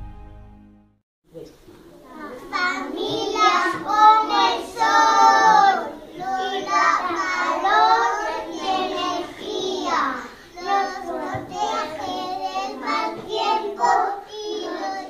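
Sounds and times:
young children singing: 0:02.1 - 0:15.0.

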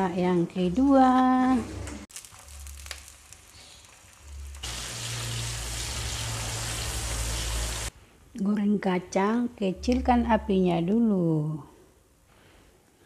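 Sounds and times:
deep frying sizzle: 0:02.0 - 0:07.9.

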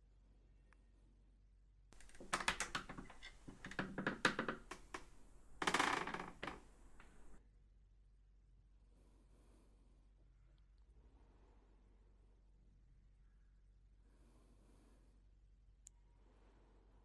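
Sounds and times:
wooden door creaking and clicking: 0:02.0 - 0:07.4.

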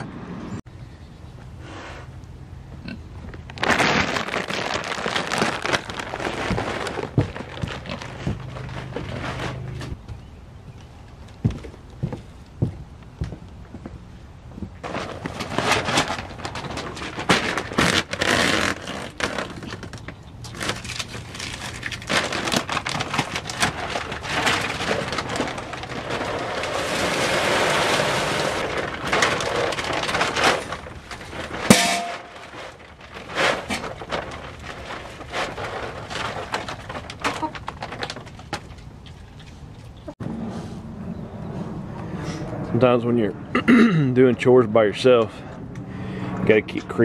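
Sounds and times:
paper sack rustling: 0:03.4 - 0:10.0, 0:14.7 - 0:39.4
boots crunching on straw: 0:03.6 - 0:09.8
metallic clank: 0:31.7 - 0:32.4.

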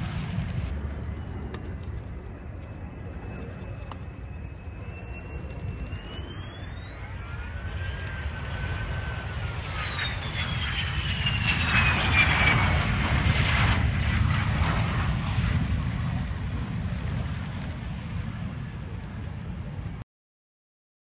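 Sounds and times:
deep jet rumble: 0:00.0 - 0:20.0
jet engine whine: 0:00.0 - 0:20.0.

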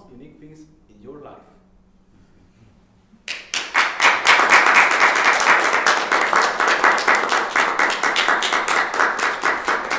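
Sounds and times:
audience applauding: 0:03.3 - 0:09.9.

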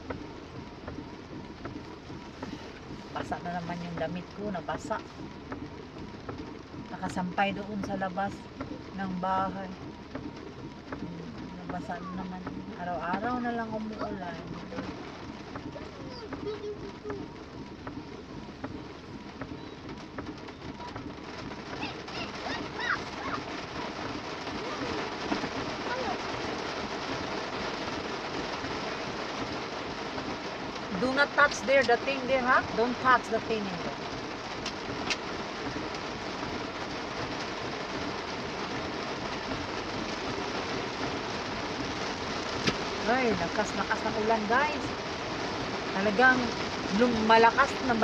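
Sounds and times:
faint ticks: 0:00.0 - 0:00.2, 0:05.0 - 0:07.2, 0:09.7 - 0:11.8
car interior rumble: 0:00.0 - 0:48.0.

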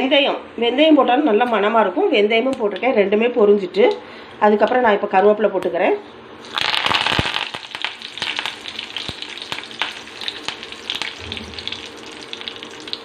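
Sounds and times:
leaves sizzling and popping in oil: 0:06.4 - 0:13.0.

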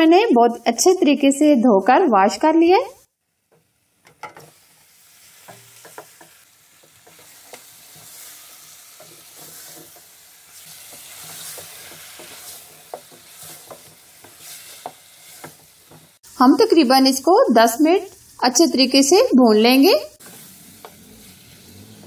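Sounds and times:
meat sizzling in hot oil: 0:03.0 - 0:22.0
spoon scraping a pot: 0:10.6 - 0:16.0.

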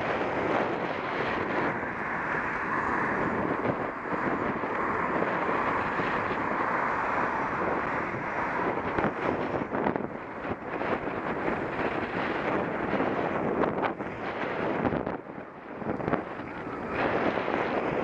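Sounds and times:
road traffic: 0:00.0 - 0:18.0
wind on microphone: 0:00.0 - 0:18.0.

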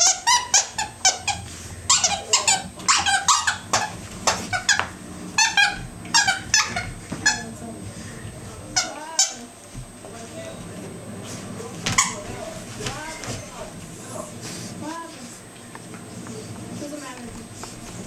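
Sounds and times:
dog toy squeaker squeaking: 0:00.0 - 0:04.8, 0:05.4 - 0:07.5.

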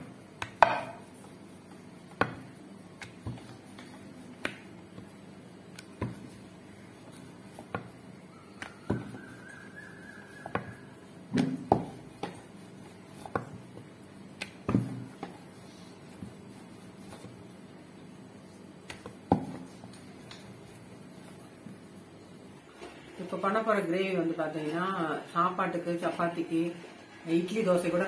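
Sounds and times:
rolling pin rolling dough: 0:00.0 - 0:22.3.

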